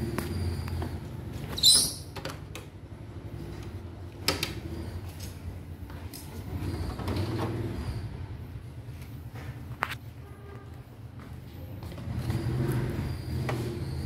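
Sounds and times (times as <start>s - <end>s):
short high squeak: 1.5s - 2.2s.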